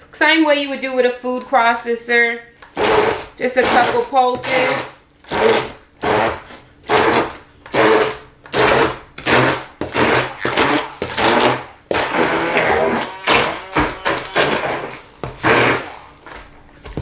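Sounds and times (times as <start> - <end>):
stick blender chopping in bursts: 2.6 - 16.1.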